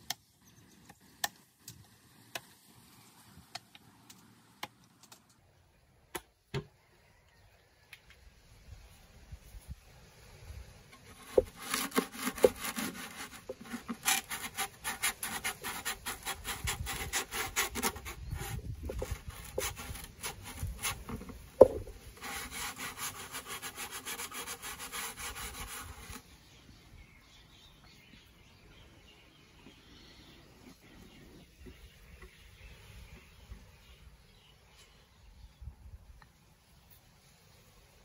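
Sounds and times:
sandpaper rubbing on wood: 11.1s - 21.3s, 22.0s - 26.2s.

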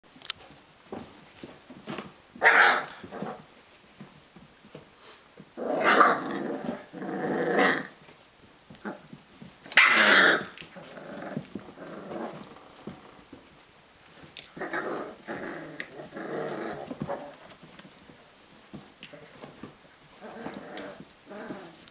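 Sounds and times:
soft scuffling: 0.1s - 9.8s, 10.4s - 21.9s
puppies growling: 2.4s - 3.5s, 5.6s - 8.0s, 8.8s - 13.4s, 14.1s - 17.6s, 18.7s - 21.9s.

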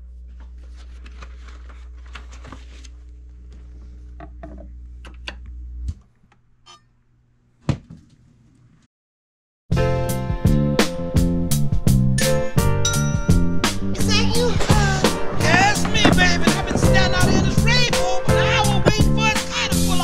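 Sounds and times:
plastic sleeve rustling: 0.5s - 3.1s
record music playing: 10.3s - 20.0s.

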